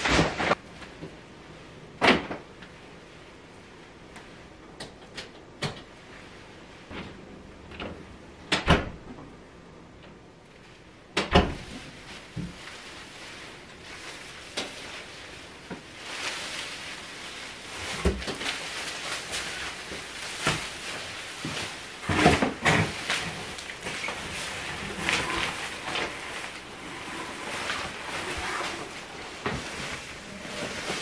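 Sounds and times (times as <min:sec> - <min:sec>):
plastic bags rustling: 0:11.6 - 0:31.0.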